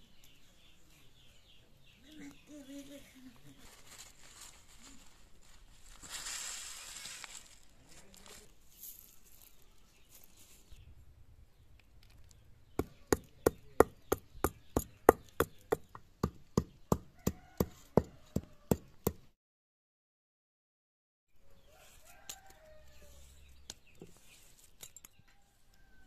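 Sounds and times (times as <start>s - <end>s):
stone pounding seeds: 12.8s - 19.2s.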